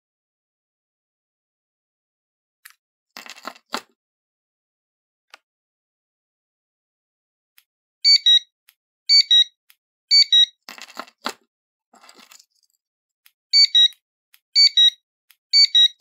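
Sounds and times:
two-note electronic beeps: 8.1s - 8.5s, 9.1s - 9.5s, 13.6s - 14.0s, 14.6s - 15.0s, 15.6s - 16.0s.

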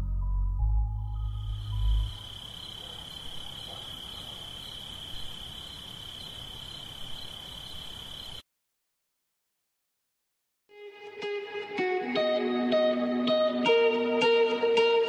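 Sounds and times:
high-pitched insect trill: 1.1s - 8.4s.

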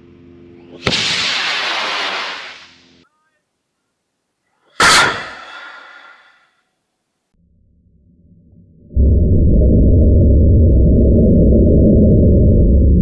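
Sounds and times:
sharp loud blast: 0.8s - 2.6s, 4.8s - 6.3s
rocket motor rushing: 0.8s - 3.0s.

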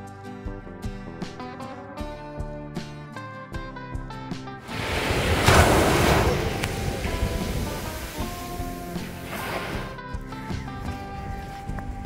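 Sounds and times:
sea wave breaking on sand: 4.6s - 10.0s.

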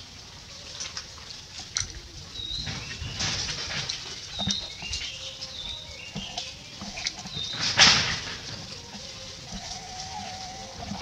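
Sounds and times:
outdoor background noise: 0.0s - 11.0s
birds whistling: 2.3s - 11.0s
rustling: 2.4s - 11.0s.

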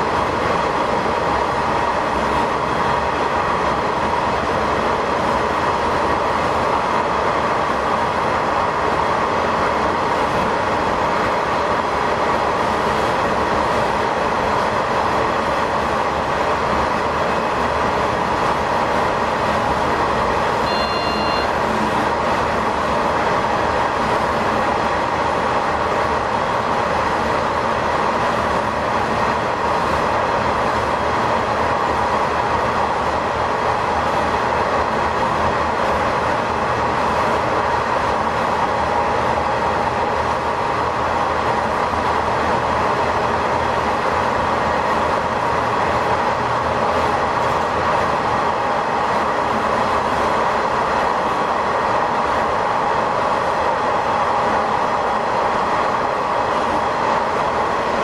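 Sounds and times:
train engine and wheel noise: 0.0s - 58.0s
high-pitched beep: 20.6s - 21.8s.

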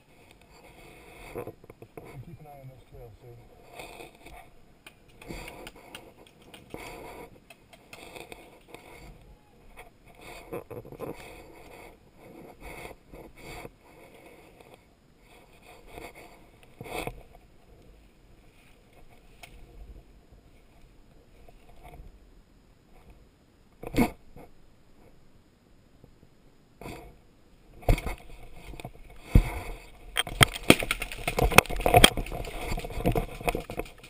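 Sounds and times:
rustling through dense brush: 27.7s - 34.0s.

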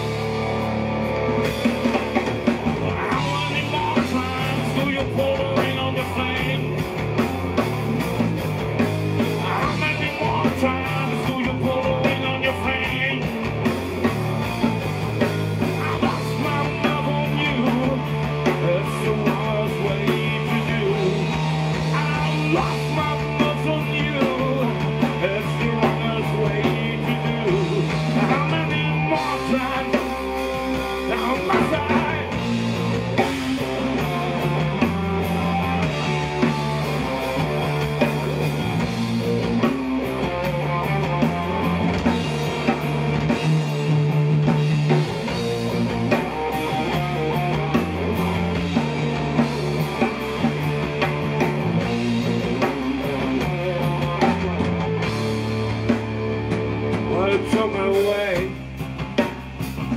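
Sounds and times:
blues-rock band playing: 0.0s - 59.9s.

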